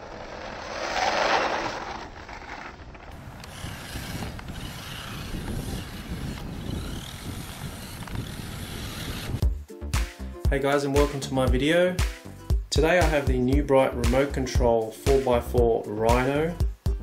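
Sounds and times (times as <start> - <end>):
tyres churning sand: 0.0 - 9.4
toy truck electric motor: 0.2 - 9.4.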